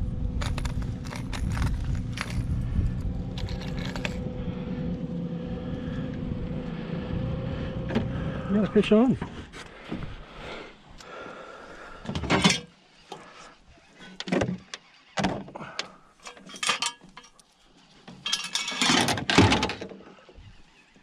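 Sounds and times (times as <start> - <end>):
clattering and rubbing: 0.4 - 2.7, 3.3 - 4.2, 16.2 - 19.8.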